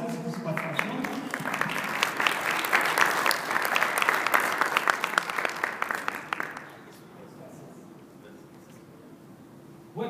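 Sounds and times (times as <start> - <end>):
audience applauding: 0.3 - 6.8.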